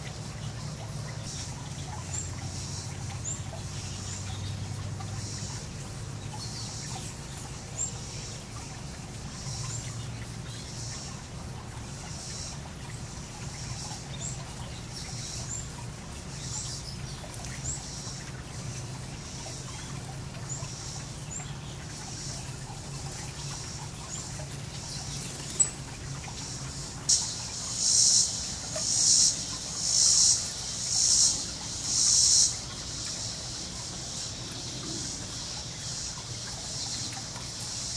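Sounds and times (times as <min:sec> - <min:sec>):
water trickling over pebbles: 0:00.0 - 0:37.9
small birds chirping: 0:12.0 - 0:37.9.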